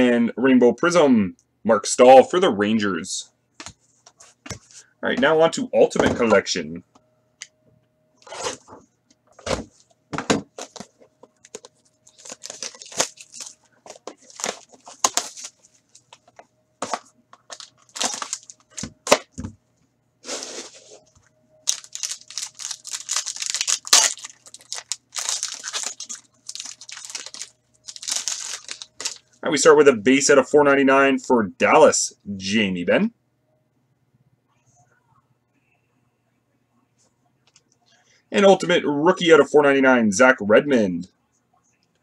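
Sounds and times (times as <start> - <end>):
cardboard and wrapping rustling: 9.4 - 19.2, 20.3 - 29.3
foil pack crinkling and tearing: 10.6 - 16.1, 16.9 - 18.9, 21.6 - 29.4.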